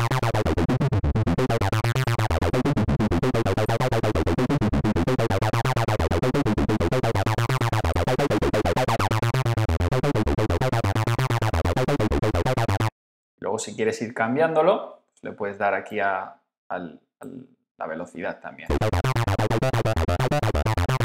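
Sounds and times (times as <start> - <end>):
distorted synth staccato sequence: 18.7 - 21.0.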